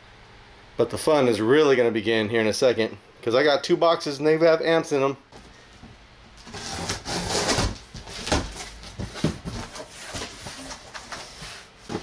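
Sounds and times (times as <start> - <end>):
blade slitting packing tape: 6.4 - 7.8
cardboard flaps rustling: 6.4 - 12.0.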